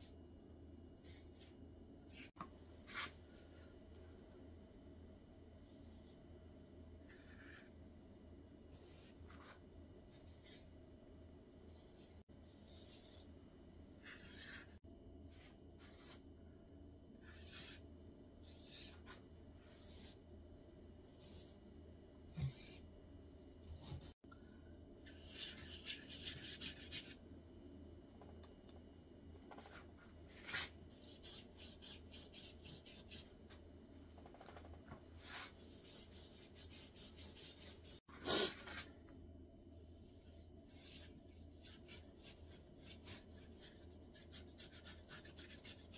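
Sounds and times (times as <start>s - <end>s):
steady low hum: 0.0s - 45.9s
paintbrush strokes on paper: 14.0s - 16.3s, 40.0s - 45.9s.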